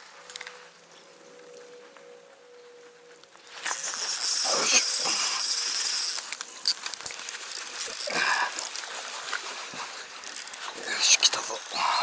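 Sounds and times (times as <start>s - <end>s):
fishing reel drag buzzing: 3.6s - 9.1s, 10.1s - 10.8s, 11.4s - 12.0s
scattered clicks: 3.6s - 9.4s.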